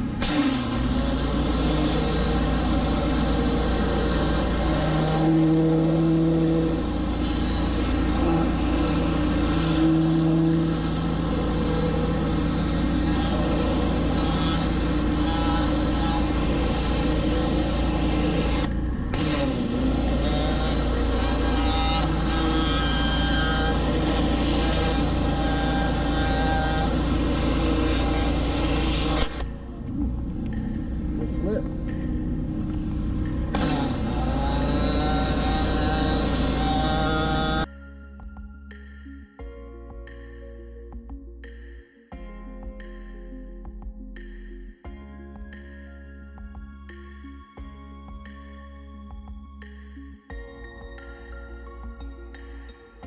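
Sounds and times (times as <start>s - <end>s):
pressure washer engine drone: 0.0s - 37.7s.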